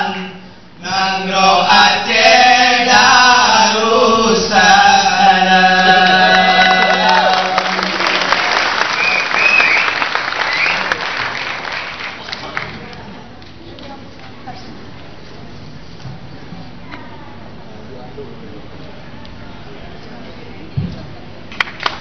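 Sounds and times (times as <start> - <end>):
men chanting in unison: 0.0 - 8.0
audience applause: 5.8 - 13.1, 21.6 - 22.0.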